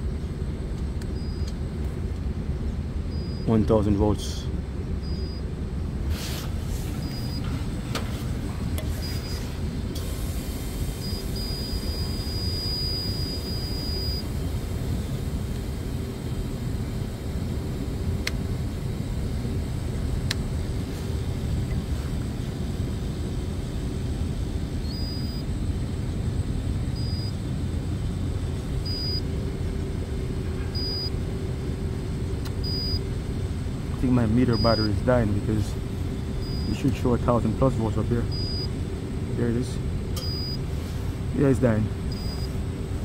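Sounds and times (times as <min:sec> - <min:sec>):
background machinery rumble: 0:00.0 - 0:43.0
insulation tester beeping: 0:01.0 - 0:01.7, 0:03.0 - 0:03.7, 0:05.0 - 0:05.6, 0:07.0 - 0:07.6, 0:08.9 - 0:14.4, 0:24.7 - 0:25.6, 0:26.9 - 0:27.5, 0:28.6 - 0:29.5, 0:30.7 - 0:31.3, 0:32.4 - 0:33.2, 0:34.0 - 0:38.8, 0:40.2 - 0:40.7, 0:42.0 - 0:42.7.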